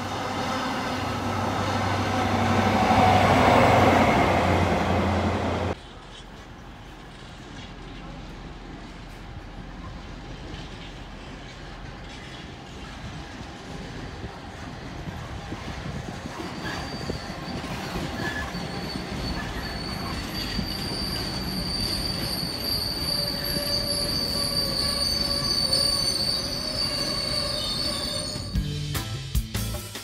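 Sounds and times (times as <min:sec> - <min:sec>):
train wheels rumbling on rails: 0:00.0 - 0:28.7
high squeal from wagons: 0:16.4 - 0:28.6.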